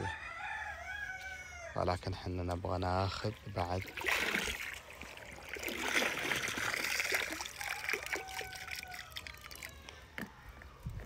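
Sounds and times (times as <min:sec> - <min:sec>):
water splashing and sloshing: 0:03.4 - 0:09.7
water dribbling off scoop: 0:03.6 - 0:09.7.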